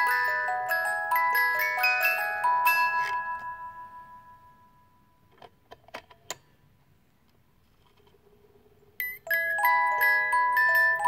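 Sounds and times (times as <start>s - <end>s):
music box plucked notes: 0.0s - 4.6s, 9.0s - 11.0s.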